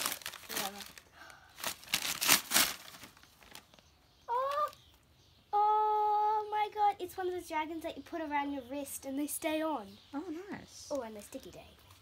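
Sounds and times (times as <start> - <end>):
wrapping paper tearing: 0.0 - 3.8.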